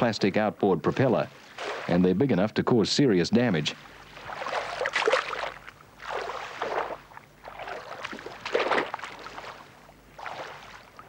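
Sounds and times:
paddle splashing in water: 1.3s - 2.0s, 3.8s - 11.0s.

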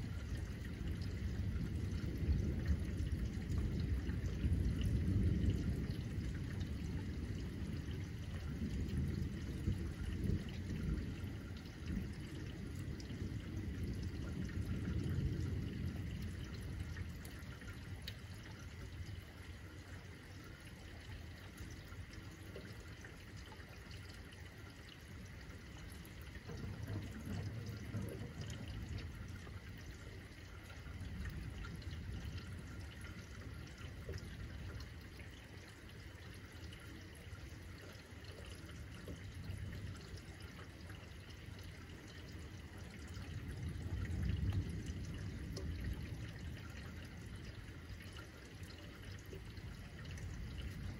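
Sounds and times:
rain falling and dripping: 0.0s - 50.9s
distant thunder rumbles: 0.1s - 19.0s, 25.6s - 35.1s.

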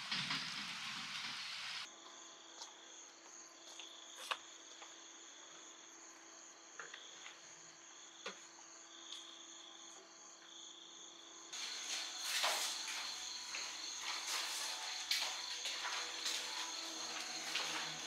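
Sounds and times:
insects trilling: 5.6s - 18.0s.

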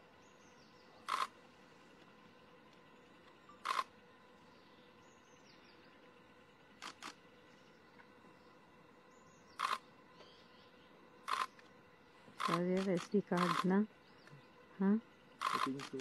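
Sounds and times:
camera shutter clicks: 1.1s - 1.3s, 3.6s - 3.9s, 9.6s - 9.8s, 11.3s - 11.5s, 12.4s - 13.7s, 15.4s - 16.0s.

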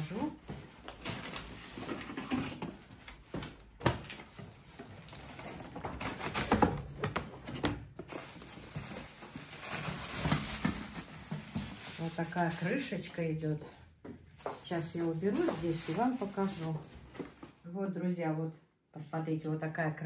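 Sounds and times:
rustling: 8.0s - 13.2s.

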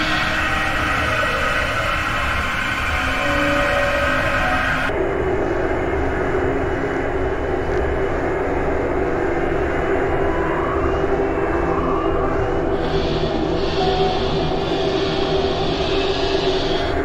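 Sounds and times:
distorted noise wash: 0.0s - 17.0s
low drone tone: 0.0s - 17.0s.

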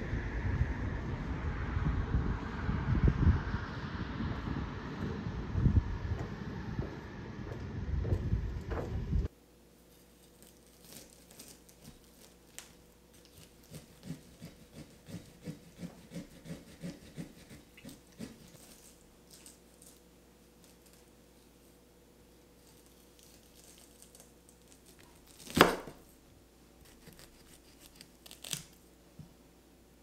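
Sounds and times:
wind buffeting microphone: 0.0s - 9.3s
knife sawing through corn: 13.3s - 19.0s, 26.8s - 28.4s.

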